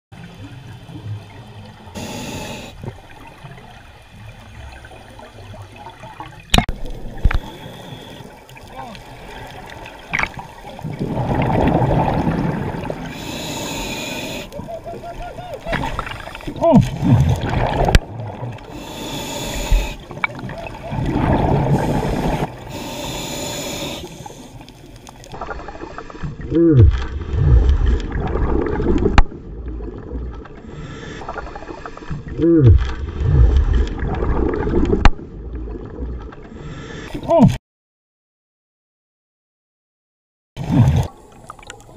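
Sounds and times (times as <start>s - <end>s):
underwater bubbles gurgling: 0.2s - 36.5s
diver breathing through regulator: 2.0s - 2.8s, 13.0s - 14.6s, 18.6s - 20.2s, 21.6s - 24.7s, 30.6s - 32.2s, 36.5s - 37.2s.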